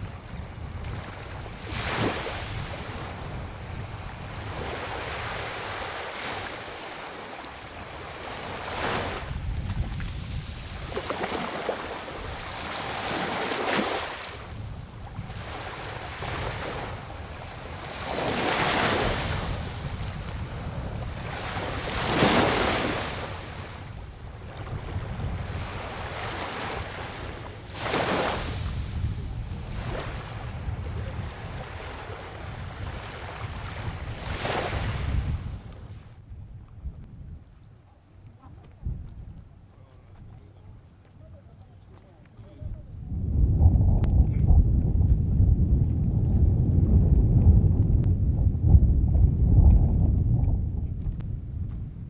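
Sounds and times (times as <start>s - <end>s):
small waves washing onto beach: 0.0s - 36.2s
wind rumble on microphone: 0.0s - 52.0s.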